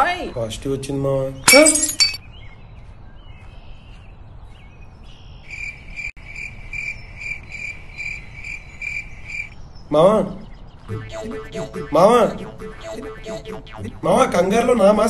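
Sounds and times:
cricket chirping: 5.4 - 9.6.

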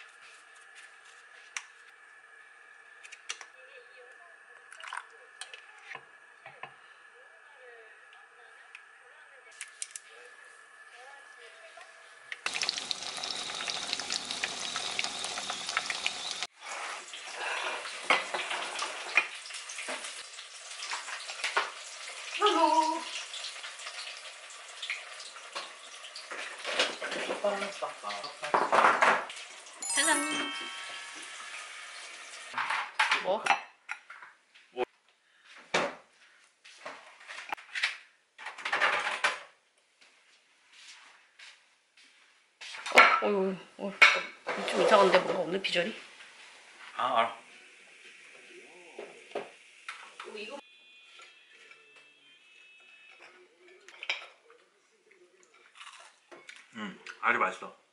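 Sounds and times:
cutlets sizzling in hot oil: 12.4 - 28.5, 29.3 - 30.0, 30.6 - 32.6
dishes and utensils clattering: 53.2 - 54.6.

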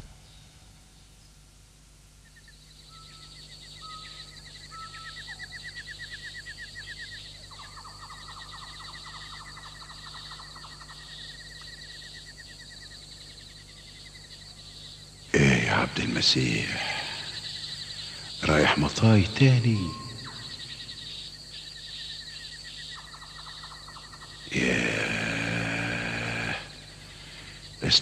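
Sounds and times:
birds trilling: 2.3 - 28.0
buzzy bird trill: 14.1 - 28.0
high bird chirping: 14.2 - 28.0.

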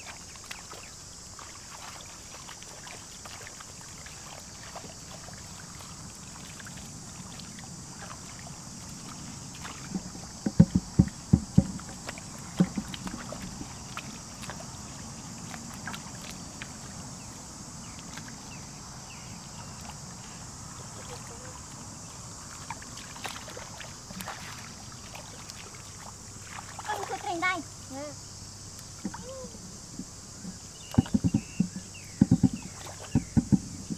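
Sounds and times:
hands splashing in muddy water: 0.0 - 10.7, 11.5 - 17.0, 22.4 - 27.3
steady high hiss: 0.0 - 33.9
loud low splashing slaps: 22.5 - 27.3.

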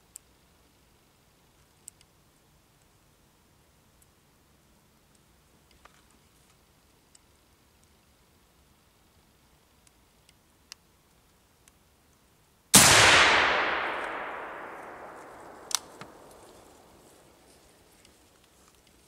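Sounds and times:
sharp click: 12.8 - 16.4
rifle shot echoing: 12.8 - 17.0.

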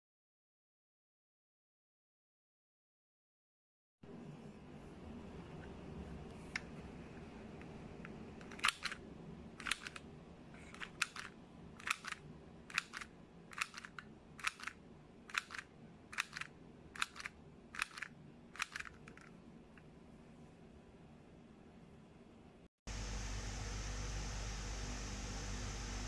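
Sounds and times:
mini sewing machine double clicks: 10.8 - 19.2.

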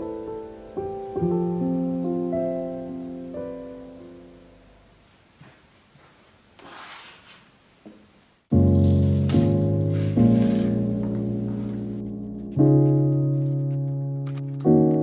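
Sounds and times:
soft piano music: 0.0 - 5.1, 8.5 - 15.0.

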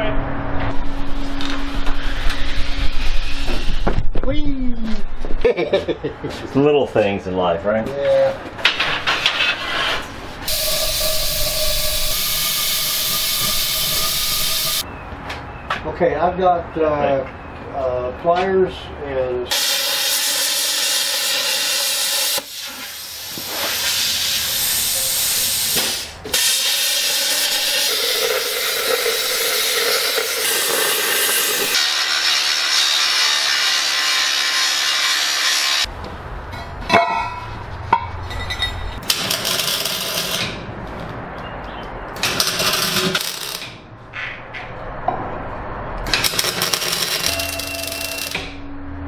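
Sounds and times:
mig welding: 9.2 - 14.8, 19.5 - 35.9, 39.0 - 40.6, 42.2 - 43.8, 46.0 - 48.6
angle grinder cutting steel: 10.5 - 14.8, 19.5 - 22.7, 26.3 - 35.9, 39.1 - 40.5, 46.2 - 48.5
plasma cutter hissing: 10.5 - 14.8, 19.5 - 35.8.

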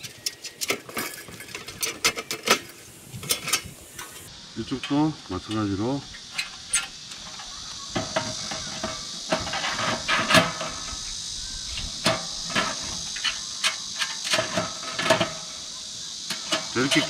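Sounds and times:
steady high hiss: 0.0 - 17.0
metal knocks and clanks: 5.6 - 11.0.

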